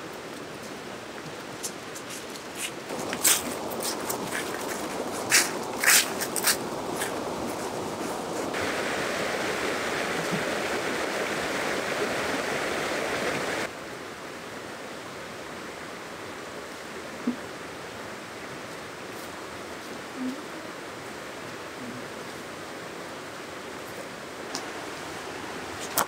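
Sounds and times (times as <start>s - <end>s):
fast river rushing: 0.0s - 26.0s
footstep crunching dry leaves: 2.0s - 8.6s.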